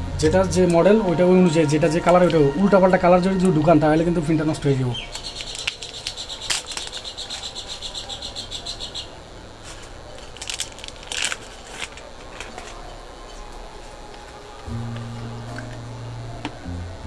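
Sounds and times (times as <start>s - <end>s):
plastic wrapping crinkling: 5.0s - 8.8s, 9.6s - 15.8s.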